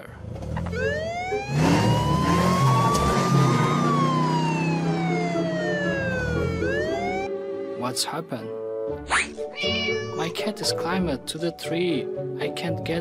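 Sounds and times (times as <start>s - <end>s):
car engine running: 0.3s - 7.3s
police siren wailing: 0.6s - 7.3s.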